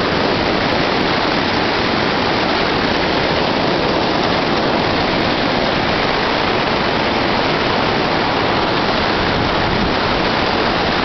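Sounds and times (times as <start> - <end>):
whitewater rapids rushing: 0.0 - 11.0.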